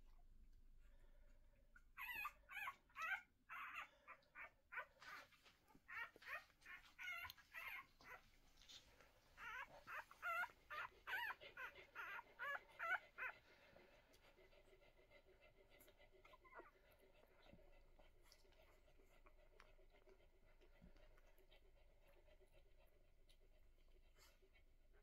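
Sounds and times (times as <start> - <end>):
puppies squeaking and whimpering: 2.0 - 13.5.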